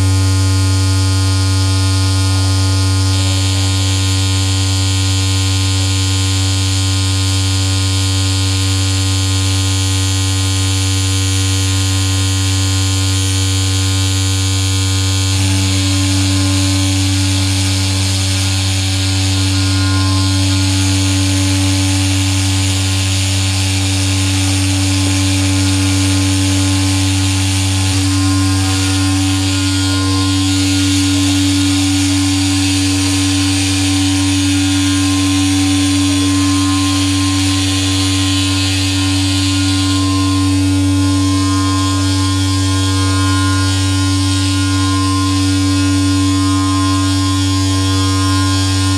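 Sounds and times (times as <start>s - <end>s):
loud steady low synth hum: 0.0s - 48.9s
sustained synth tones: 13.8s - 48.9s.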